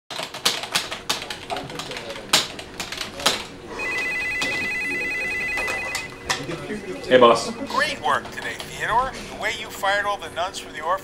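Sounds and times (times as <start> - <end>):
keyboard keys clicking: 0.1 - 3.5
telephone ringing with electronic trill: 3.7 - 8.2.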